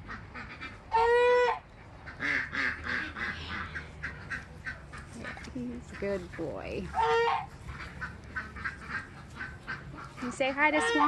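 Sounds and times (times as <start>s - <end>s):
goose honking: 0.0s - 5.4s, 6.0s - 11.0s
soft short low goose calls: 6.9s - 11.0s.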